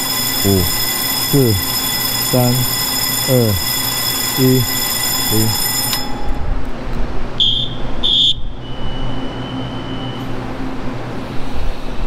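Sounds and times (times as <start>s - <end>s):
faint steady tone: 0.0s - 6.6s
high-pitched signal tones: 0.0s - 6.6s.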